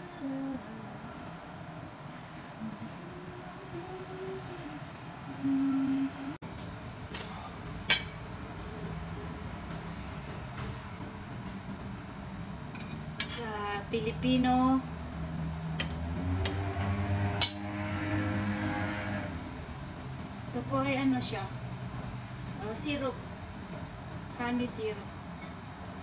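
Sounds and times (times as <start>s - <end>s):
cutlery clinking on plates: 7.1s - 8.2s, 12.8s - 13.4s.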